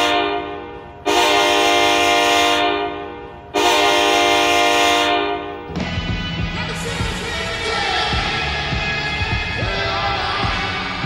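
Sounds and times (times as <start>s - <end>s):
goal horn blasts: 0.0s - 5.7s
goal song music: 5.7s - 11.0s.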